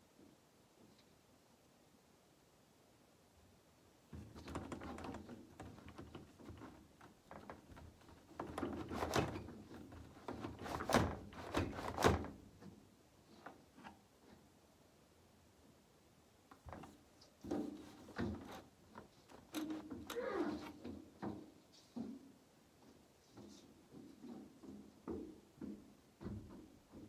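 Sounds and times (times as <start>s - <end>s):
glass sliding door rattling: 4.2s - 12.4s.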